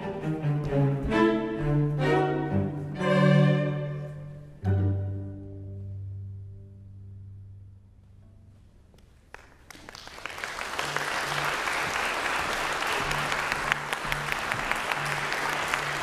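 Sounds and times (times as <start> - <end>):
audience applause: 9.3 - 16.0.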